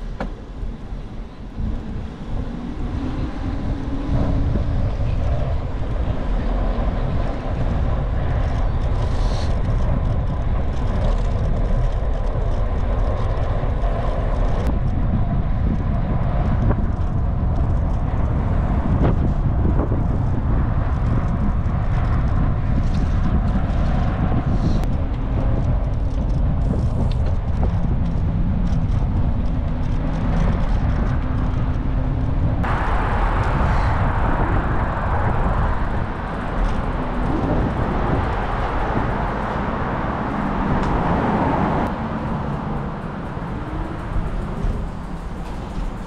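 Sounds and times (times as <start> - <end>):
wind and road noise rumble: 0.0 - 46.0.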